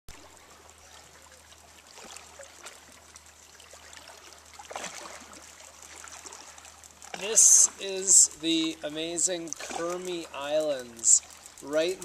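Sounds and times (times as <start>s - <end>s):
water lapping and trickling: 0.1s - 12.0s
water sloshing: 0.1s - 12.0s.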